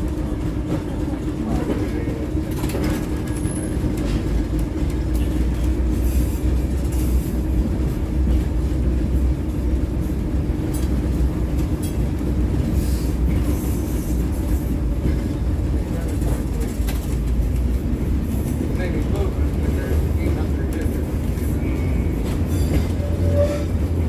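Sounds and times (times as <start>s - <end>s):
wheels rumbling on rails: 0.0s - 24.0s.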